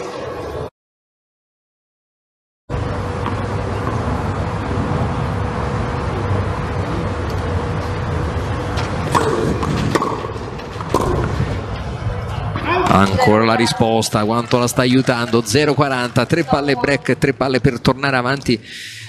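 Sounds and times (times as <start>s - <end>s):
low outdoor rumble: 2.7s - 18.6s
tennis ball bouncing on clay: 9.1s - 11.4s.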